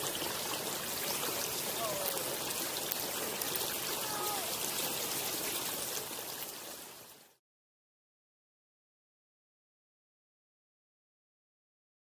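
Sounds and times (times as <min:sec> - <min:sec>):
river rushing: 0:00.0 - 0:07.4.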